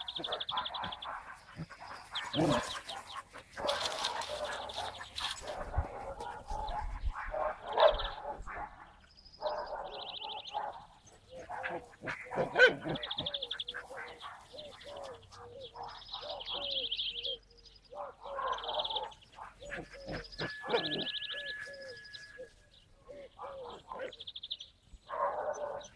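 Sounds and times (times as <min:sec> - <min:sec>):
dogs panting and scuffling: 0:00.0 - 0:07.6, 0:11.1 - 0:16.0
dog barking: 0:00.0 - 0:16.9, 0:17.9 - 0:21.2, 0:23.3 - 0:24.2, 0:25.1 - 0:25.9
songbirds trilling: 0:00.0 - 0:25.9.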